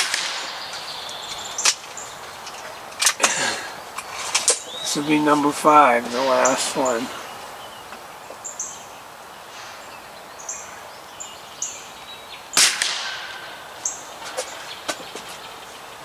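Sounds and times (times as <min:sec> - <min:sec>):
air rifle shot crack: 0:00.0 - 0:00.8, 0:12.6 - 0:13.8
small birds chirping: 0:00.0 - 0:16.0.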